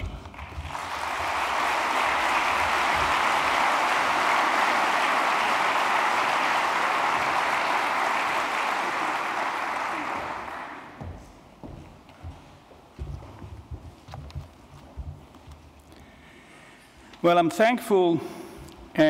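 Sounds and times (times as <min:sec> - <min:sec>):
audience applauding: 0:00.0 - 0:11.1.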